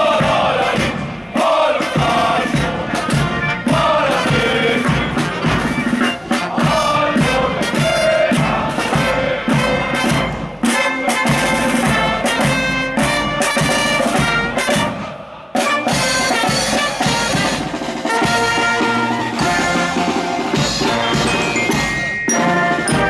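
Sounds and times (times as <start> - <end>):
bass drum beat: 0.0 - 10.6
snare drums: 0.0 - 23.0
trumpets and clarinets: 0.0 - 23.0.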